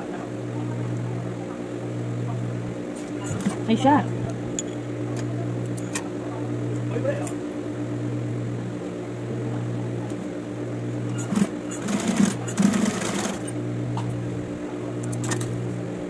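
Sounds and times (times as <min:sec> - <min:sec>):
sewing machine fast stitching: 0:11.1 - 0:13.5
sewing machine motor humming: 0:11.1 - 0:15.8.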